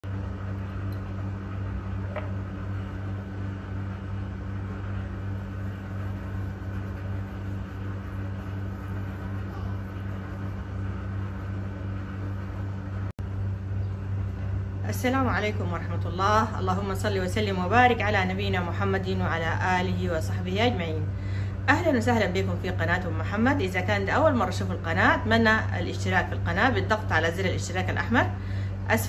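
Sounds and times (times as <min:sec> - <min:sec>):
low electrical hum with hiss: 0:00.0 - 0:29.0.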